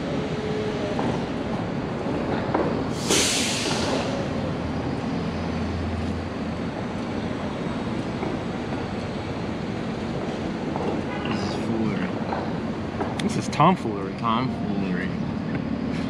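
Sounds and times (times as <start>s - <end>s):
city street traffic: 0.0s - 16.0s
short sharp hiss: 2.9s - 4.2s.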